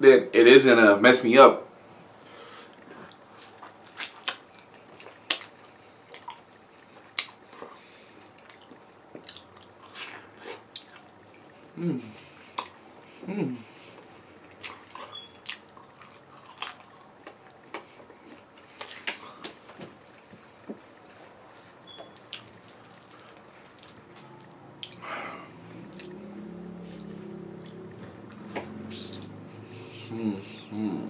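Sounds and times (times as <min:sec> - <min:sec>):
low steady hum: 0:00.0 - 0:31.0
person chewing food: 0:02.2 - 0:13.2, 0:13.8 - 0:30.0
wet mouth clicks and smacks: 0:03.8 - 0:04.4, 0:24.8 - 0:25.0, 0:25.9 - 0:26.2.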